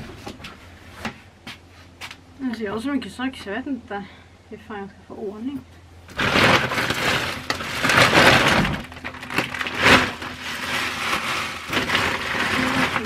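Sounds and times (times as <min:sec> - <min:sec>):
plastic bags rustling: 0:06.1 - 0:13.0
things knocking and clattering: 0:06.1 - 0:13.0.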